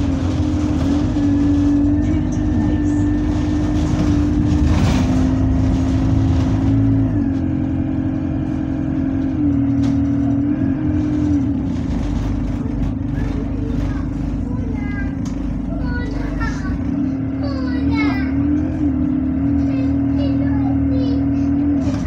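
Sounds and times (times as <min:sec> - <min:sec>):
bus diesel engine rumble: 0:00.0 - 0:22.0.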